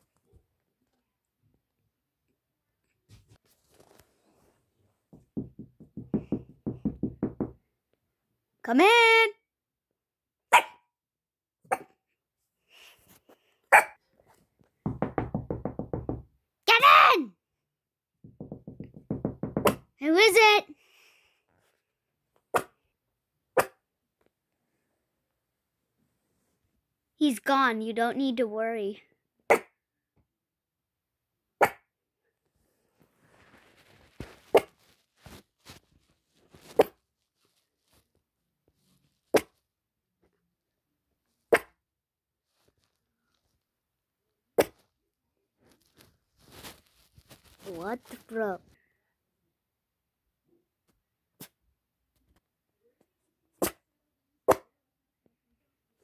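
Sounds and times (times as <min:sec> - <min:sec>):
fast knocking on door: 0:05.1 - 0:07.7, 0:14.8 - 0:16.4, 0:18.2 - 0:19.9
small dog barking: 0:10.5 - 0:10.8, 0:13.7 - 0:14.0.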